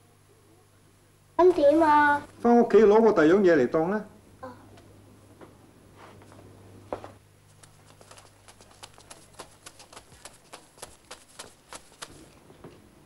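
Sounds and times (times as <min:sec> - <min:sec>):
child running footsteps: 0:06.9 - 0:12.5.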